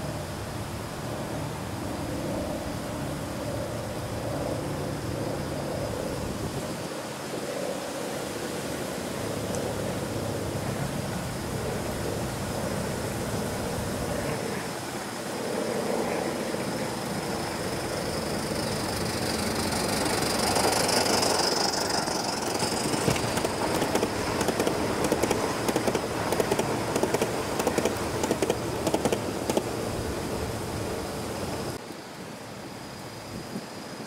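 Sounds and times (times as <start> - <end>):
model train wheels clicking over rails: 16.8 - 30.3.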